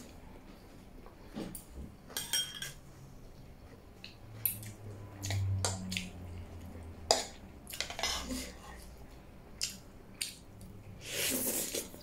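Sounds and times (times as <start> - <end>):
cutlery clinking on ceramic plate: 2.2 - 2.8.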